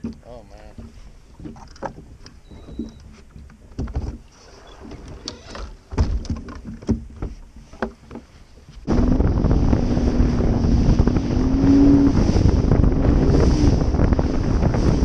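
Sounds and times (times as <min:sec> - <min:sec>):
motor clunking on deck mount: 0:00.0 - 0:04.3, 0:04.9 - 0:08.3.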